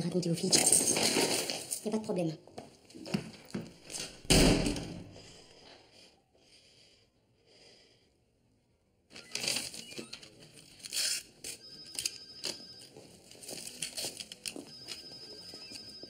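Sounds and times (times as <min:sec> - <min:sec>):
plastic and paper crinkling: 0:13.2 - 0:15.0.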